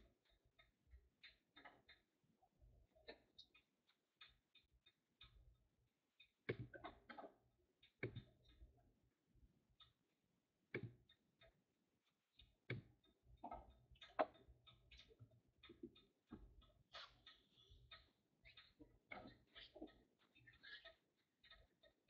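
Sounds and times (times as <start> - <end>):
faint irregular clicks: 0.0 - 22.0.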